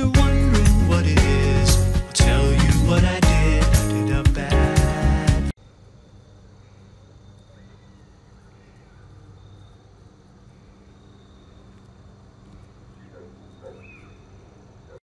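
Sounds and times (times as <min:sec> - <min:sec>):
insects chirping: 0:05.6 - 0:15.0
low steady hum: 0:05.6 - 0:15.0
faint bird-like chirps: 0:06.5 - 0:15.0.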